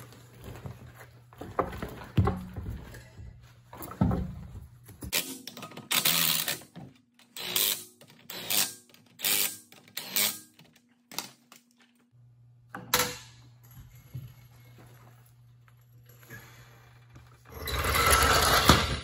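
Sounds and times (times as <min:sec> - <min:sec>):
wrench running lug nuts: 0:05.1 - 0:10.6.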